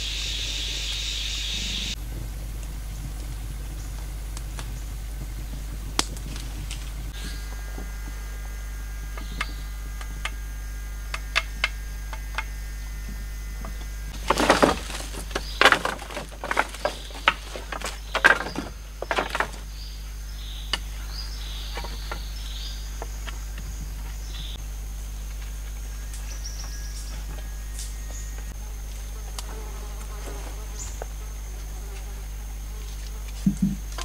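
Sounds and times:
faint insect drone: 0:00.0 - 0:34.0
dry sticks snapping: 0:06.0 - 0:07.0.

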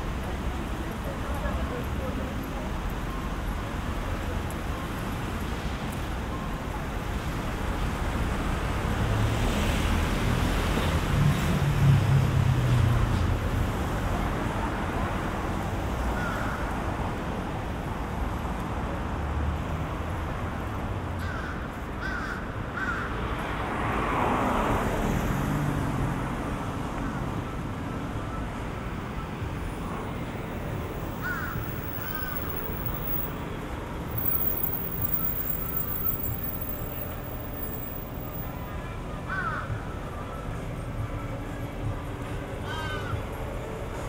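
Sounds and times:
road traffic: 0:00.0 - 0:44.0
vehicle passing close: 0:29.4 - 0:38.7
bird calling: 0:31.2 - 0:33.3.

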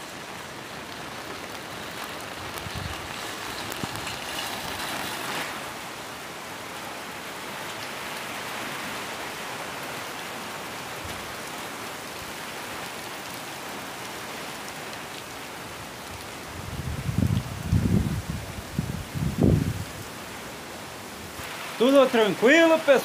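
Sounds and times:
steady rain: 0:00.0 - 0:23.0.

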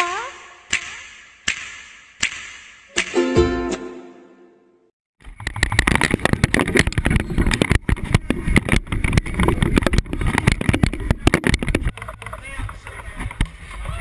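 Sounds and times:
camera handling rumble: 0:05.3 - 0:12.3.

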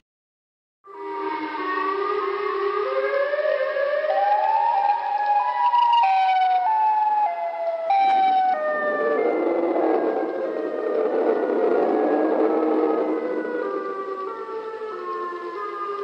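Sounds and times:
siren-like wailing tone: 0:00.9 - 0:16.0.

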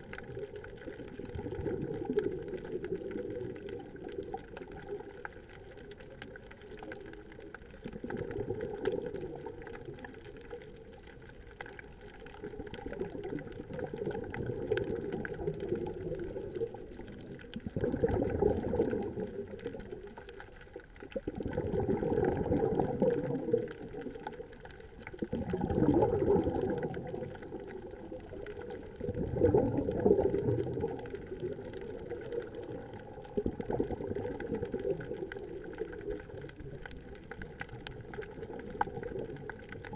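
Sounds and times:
exhaled bubbles rushing: 0:00.0 - 0:39.9.

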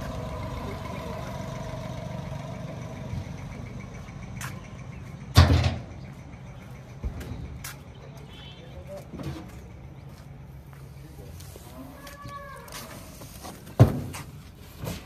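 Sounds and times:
higher engine tone: 0:00.0 - 0:05.4
vehicle engine idling: 0:00.0 - 0:15.0.

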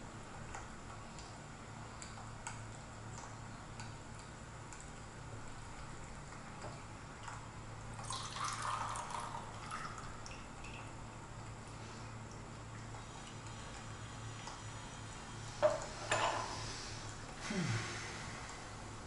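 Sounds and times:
tea pouring into glass pitcher: 0:08.0 - 0:10.9.

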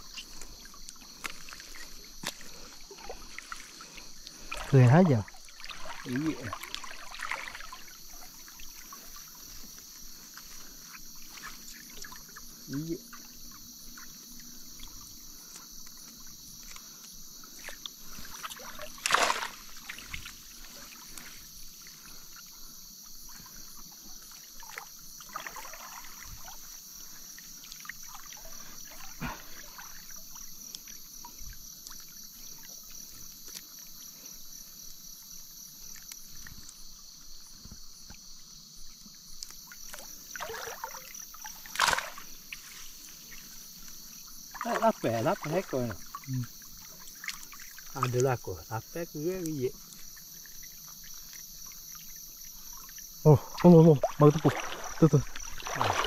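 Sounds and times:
insects chirring: 0:00.0 - 0:56.0
water splashing and trickling: 0:00.0 - 0:56.0
loud splash: 0:18.5 - 0:20.2, 0:40.4 - 0:42.3, 0:53.6 - 0:56.0.

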